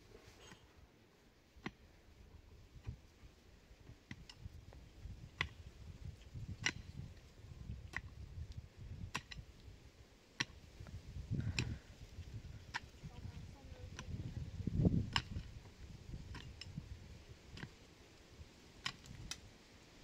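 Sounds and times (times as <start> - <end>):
low uneven handling rumble: 10.8 - 17.8.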